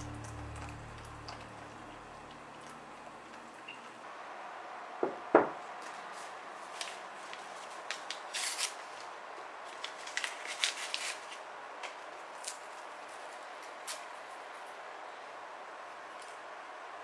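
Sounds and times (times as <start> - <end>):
mug knocking on wooden table: 5.0 - 5.6
paper wrapper tearing and crinkling: 6.7 - 11.4.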